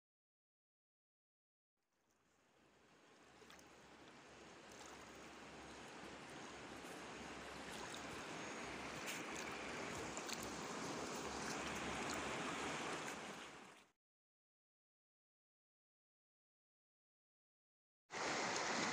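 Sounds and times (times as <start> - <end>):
river rushing over rocks: 18.2 - 18.9.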